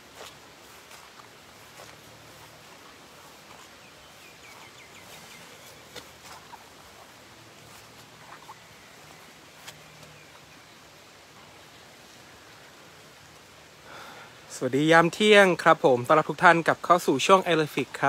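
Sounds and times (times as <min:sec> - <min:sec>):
rain falling: 0:00.0 - 0:18.0
bird chirping: 0:02.3 - 0:12.2.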